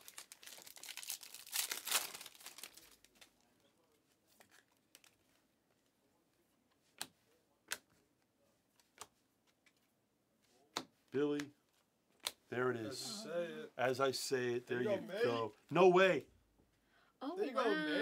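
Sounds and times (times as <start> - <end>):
wrapper tearing and crinkling: 0.0 - 3.3
cards clicking: 12.1 - 12.4.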